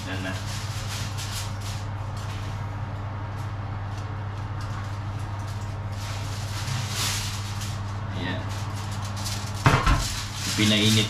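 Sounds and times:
foil rustling: 0.0 - 11.0
low electrical hum: 0.0 - 11.0
roasting tray knocks: 9.6 - 10.4.

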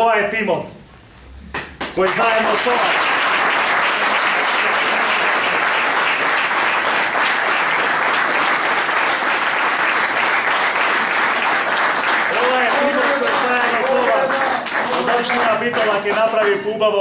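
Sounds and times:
audience applauding: 1.9 - 16.6.

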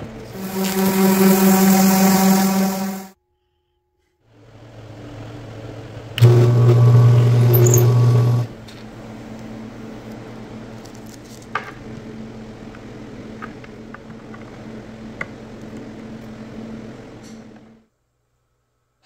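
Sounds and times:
steady hum: 0.0 - 3.2
drill press boring wood: 6.2 - 8.5.

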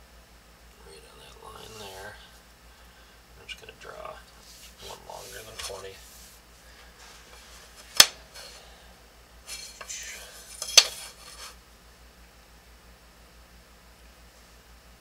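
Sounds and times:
plastic ruler scraping: 9.5 - 11.6.

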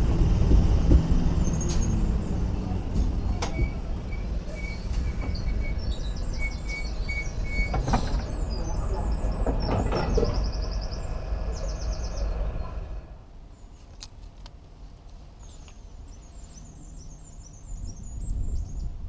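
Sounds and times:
train rumbling: 0.0 - 13.5
songbirds chirping: 0.6 - 19.0.

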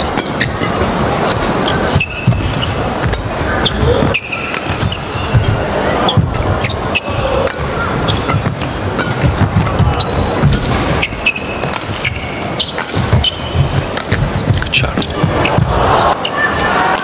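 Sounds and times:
crowd cheering and shouting: 0.0 - 11.3, 13.0 - 17.0
rackets striking shuttlecock: 0.1 - 15.8
shoe squeaks on court: 1.6 - 14.2.

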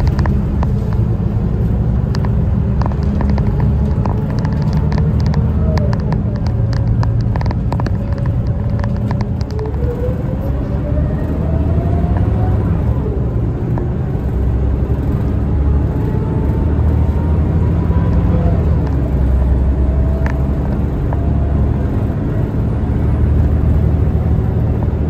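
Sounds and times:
bus engine and road rumble: 0.0 - 25.0.

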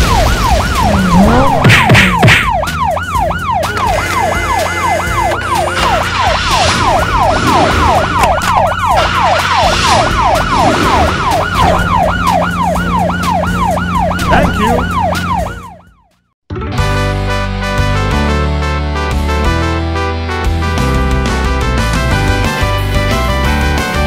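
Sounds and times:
police siren yelping: 0.0 - 16.1.

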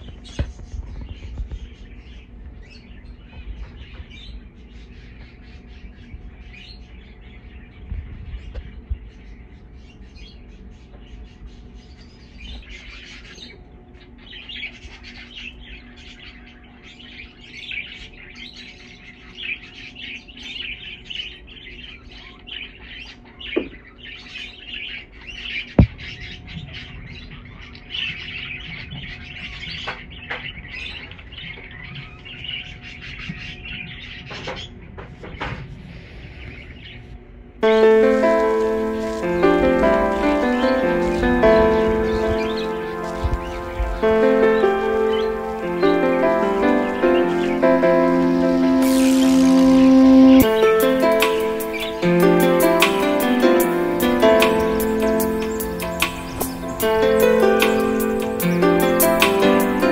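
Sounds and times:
budgerigars chattering and warbling: 37.8 - 47.5.

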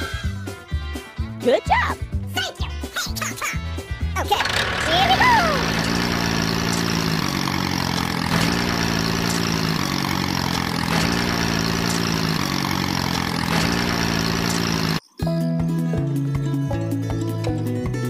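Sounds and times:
tractor engine idling: 4.2 - 15.0.

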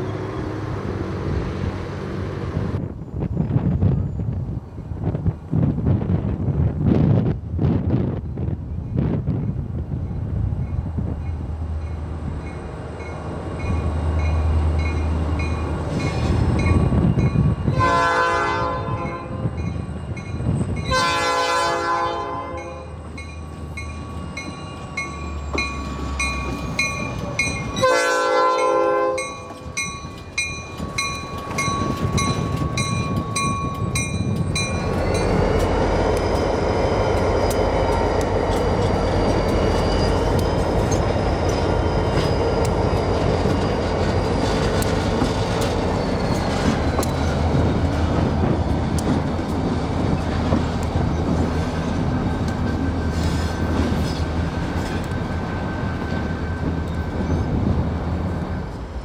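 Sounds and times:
diesel locomotive engine rumble: 0.0 - 59.0
locomotive horn blasts: 17.7 - 19.5, 20.9 - 23.0, 27.8 - 29.6
wheel squeal: 38.5 - 42.7, 45.6 - 47.4.

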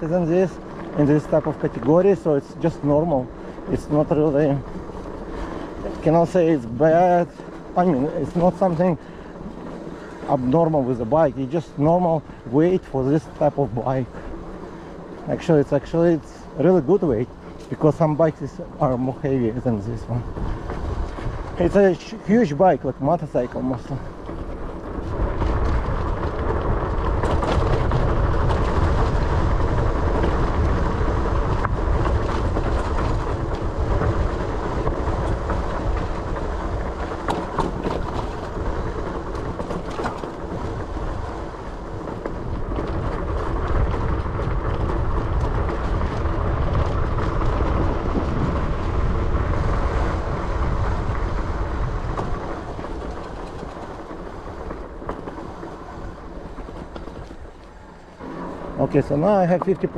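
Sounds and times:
bike rattling over dirt trail: 0.0 - 59.9
bike knocks and clatters: 23.8 - 57.7.

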